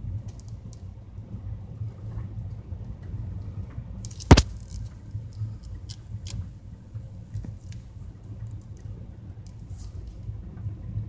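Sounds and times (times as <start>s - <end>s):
vehicle rumbling slowly along road: 0.0s - 11.0s
sharp knock: 4.2s - 4.5s.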